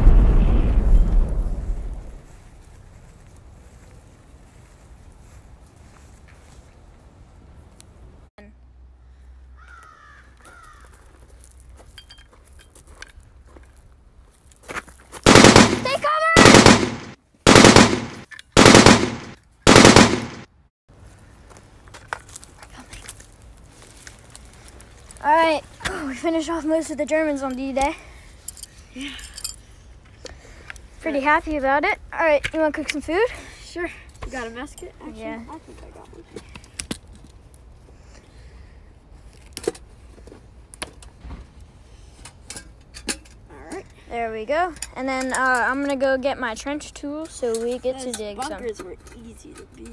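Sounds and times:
machine-gun fire bursts: 15.3 - 20.5.

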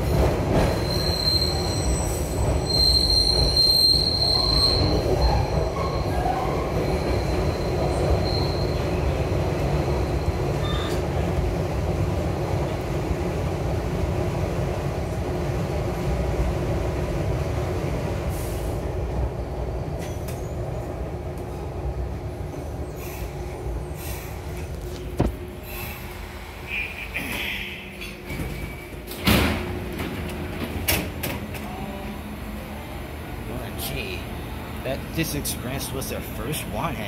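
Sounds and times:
train wheels rumbling on rail: 0.0 - 37.0
high wheel squeal: 0.7 - 9.1.

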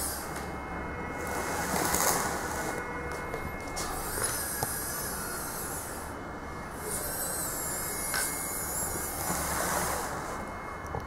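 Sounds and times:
toy car electric motor whining: 1.2 - 2.9, 3.8 - 11.0.

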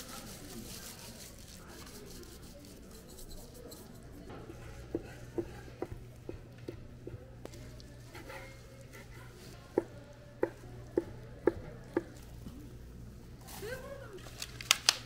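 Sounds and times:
knife chopping on wooden board: 4.4 - 7.2.

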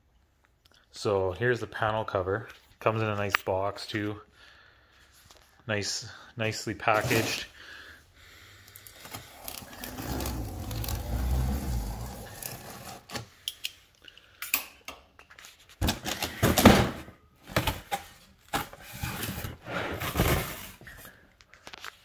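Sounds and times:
cardboard packaging rustling and scraping: 6.9 - 7.5, 9.0 - 13.3, 17.6 - 21.2.

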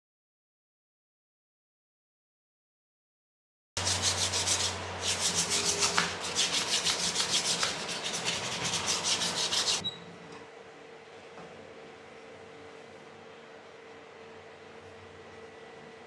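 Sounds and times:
cloth sanding wooden handle: 3.8 - 9.8.

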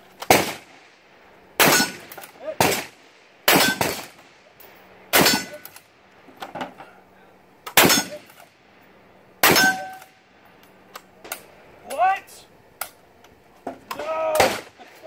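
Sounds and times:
rifle shots: 0.2 - 0.8, 1.6 - 4.2, 5.1 - 5.8, 7.7 - 8.4, 9.4 - 10.1, 14.0 - 15.0
metallic ring of steel target: 1.6 - 2.1, 5.2 - 5.7, 7.8 - 8.3, 9.4 - 10.1.

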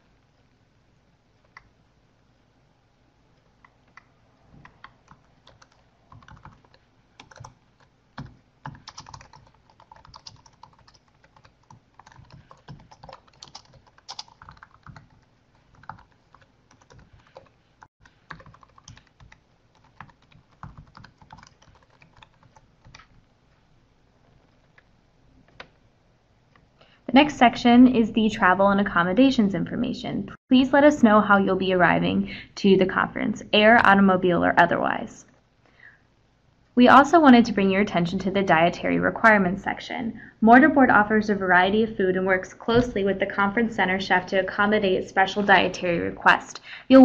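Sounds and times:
faint typing on keyboard: 1.4 - 1.8, 3.3 - 27.0.

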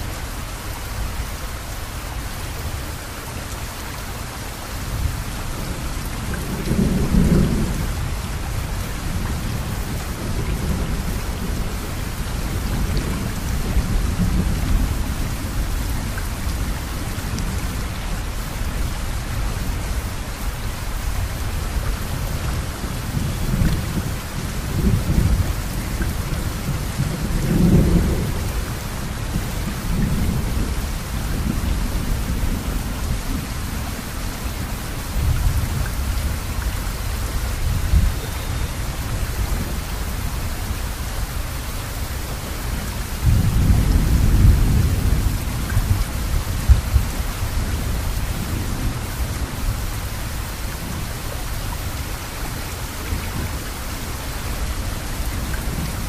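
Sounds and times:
rain hiss: 0.0 - 56.0
thunder rumbling: 5.6 - 8.1, 22.1 - 34.0, 42.7 - 50.0.

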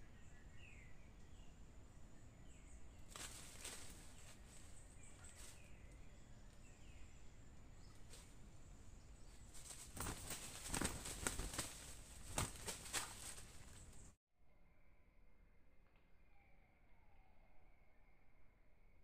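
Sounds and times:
rustling in dry leaves: 2.9 - 6.8, 7.8 - 14.1
wing flaps: 3.1 - 5.7, 9.3 - 14.1.

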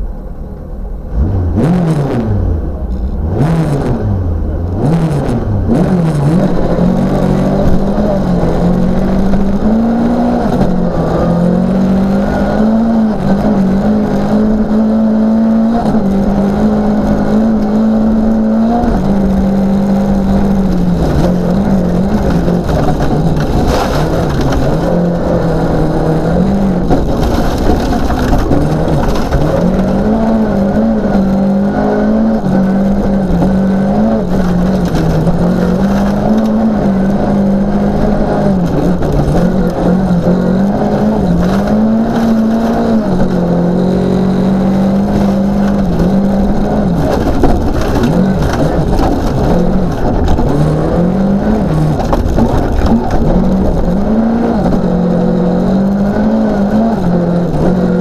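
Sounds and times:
rally car engine revving: 0.0 - 58.0
tyres on gravel: 15.7 - 58.0.

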